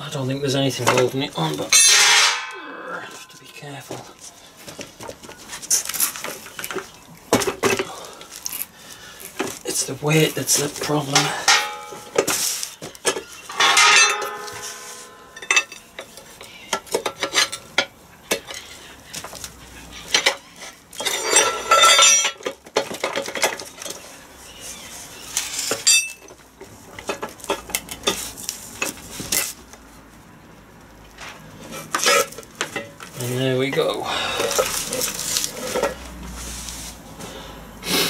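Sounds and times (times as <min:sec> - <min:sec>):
metal clinks and scraping: 0:00.8 - 0:04.4, 0:09.4 - 0:18.9, 0:19.9 - 0:24.1, 0:25.4 - 0:29.6, 0:31.6 - 0:36.4
rattle of metal parts: 0:00.8 - 0:24.2, 0:25.4 - 0:29.6, 0:31.2 - 0:36.1
ringing metal strike: 0:01.7 - 0:03.7, 0:11.4 - 0:12.3, 0:13.5 - 0:15.9.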